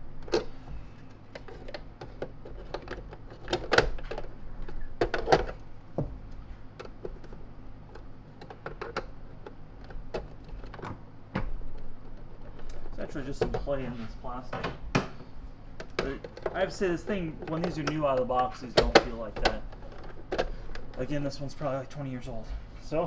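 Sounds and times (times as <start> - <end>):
hard plastic clicks and knocks: 17.4 - 20.9.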